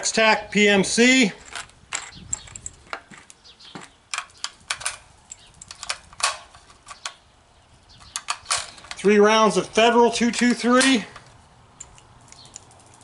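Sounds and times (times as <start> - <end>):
cartridges scraping and tapping: 8.0 - 12.8.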